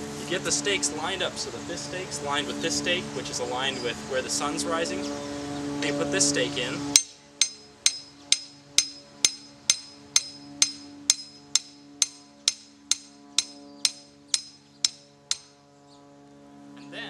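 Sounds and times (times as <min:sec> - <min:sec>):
hammer striking metal stake: 0:07.0 - 0:15.5.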